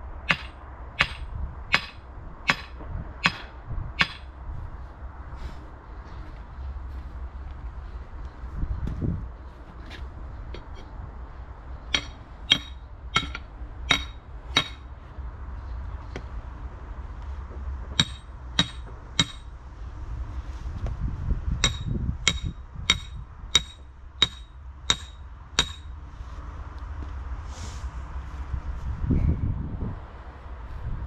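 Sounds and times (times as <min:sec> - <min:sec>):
sledgehammer clanging on metal stakes: 0:00.3 - 0:04.3, 0:11.9 - 0:14.9, 0:17.8 - 0:19.5, 0:21.6 - 0:26.0.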